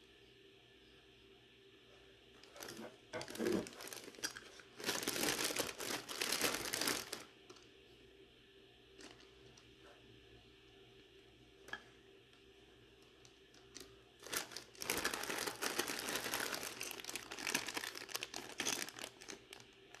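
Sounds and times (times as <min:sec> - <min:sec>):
plastic bags crinkling: 0:02.4 - 0:07.3, 0:13.7 - 0:20.0.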